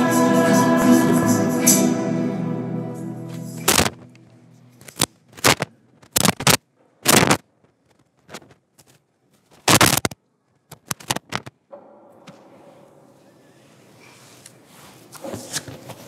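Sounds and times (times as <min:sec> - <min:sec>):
scraping rustling noises: 0:12.4 - 0:16.0.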